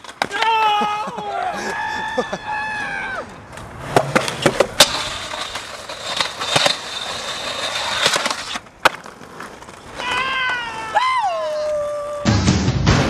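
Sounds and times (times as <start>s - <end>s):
skateboard clicks: 0.0s - 0.7s, 2.8s - 12.1s
skateboard clacking on ground: 0.0s - 1.1s, 3.2s - 12.1s
skateboard wheels rolling on concrete: 0.0s - 12.6s.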